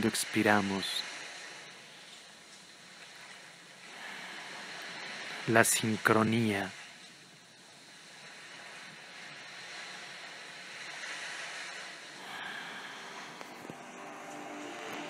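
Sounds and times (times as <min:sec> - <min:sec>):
ocean surf rushing: 0:00.0 - 0:15.0.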